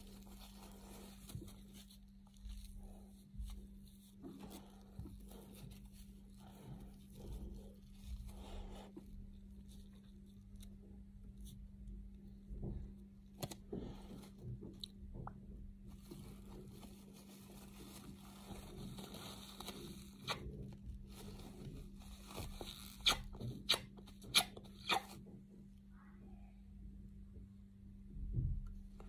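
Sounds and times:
paper tissue crinkling: 0.0 - 12.4, 15.8 - 24.3.

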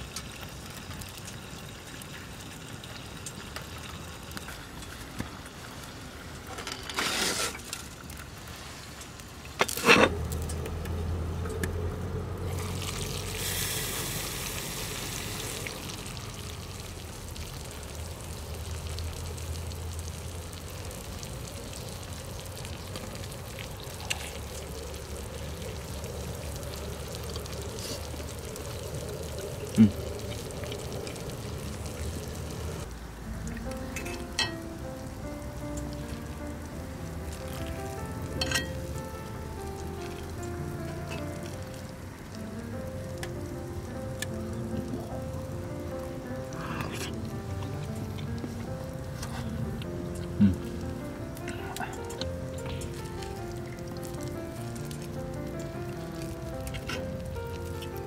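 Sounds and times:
food sizzling in skillet: 12.4 - 21.0.

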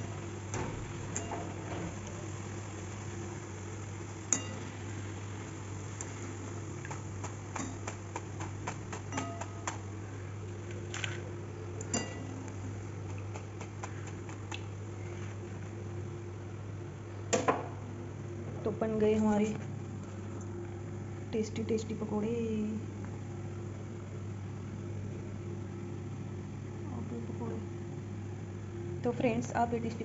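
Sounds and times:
steady low hum: 0.0 - 30.0
skimmer and spoon clinking on steel: 4.3 - 4.8, 9.1 - 9.7, 11.8 - 12.4.

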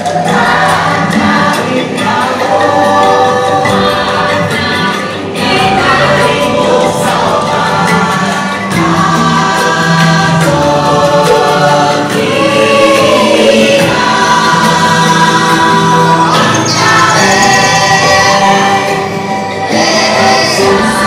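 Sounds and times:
choir singing: 0.0 - 21.0
music: 0.0 - 21.0.

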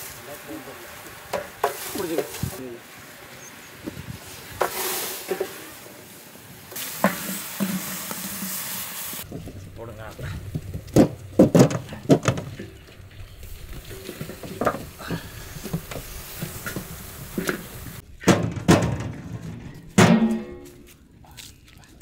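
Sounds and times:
sprouts knocking against metal pot: 1.3 - 2.4.

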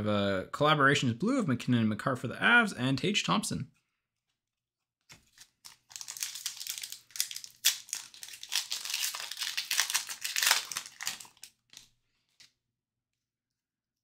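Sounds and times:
wrapper crinkling and crackling: 5.1 - 12.5.

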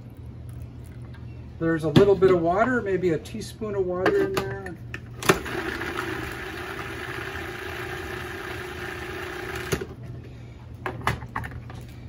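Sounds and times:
food processor motor running: 5.2 - 10.0.

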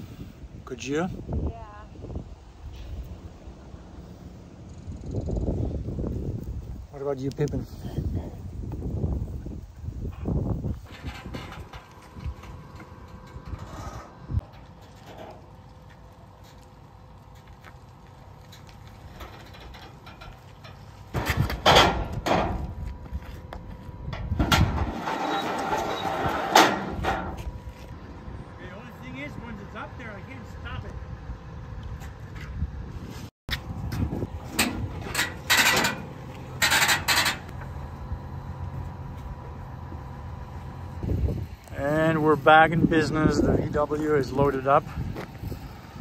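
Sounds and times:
steady low hum: 0.0 - 46.0
metal ramp scraping and rattling: 10.1 - 15.7, 18.9 - 22.8, 24.1 - 27.7, 33.9 - 37.7.

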